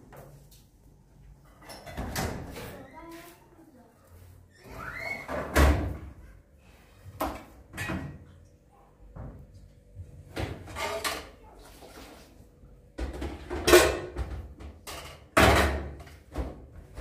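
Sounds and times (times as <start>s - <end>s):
dishes and metal pot clattering: 13.0s - 16.2s.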